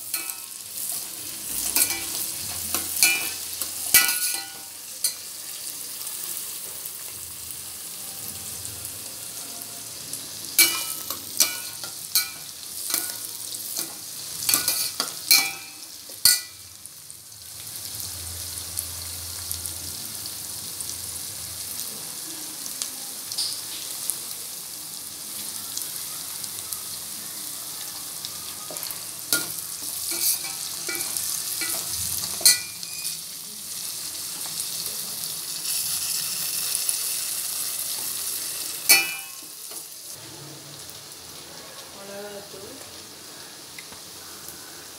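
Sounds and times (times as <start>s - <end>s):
shallots sizzling in hot oil: 0.0s - 44.9s
metal spoon scraping a pot: 29.4s - 33.2s.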